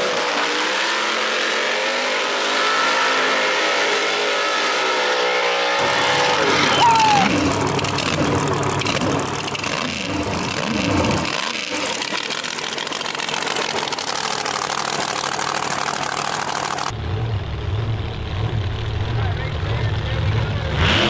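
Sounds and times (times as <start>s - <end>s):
race car engines revving: 0.0s - 21.0s.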